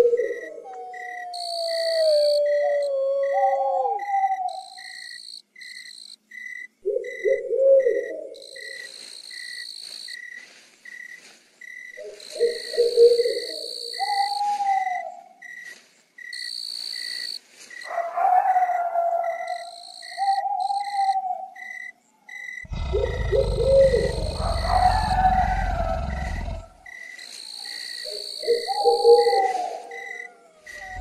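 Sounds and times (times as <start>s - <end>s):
insect chirping steadily: 0.0s - 31.0s
high insect trill: 4.4s - 7.3s, 8.3s - 14.6s, 15.4s - 31.0s
low animal calls: 22.2s - 26.9s, 28.5s - 31.0s.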